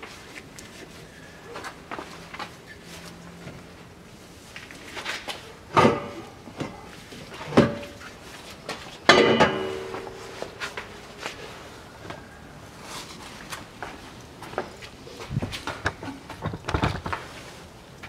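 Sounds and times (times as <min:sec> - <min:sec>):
metal knocks with ringing: 0:09.1 - 0:10.2.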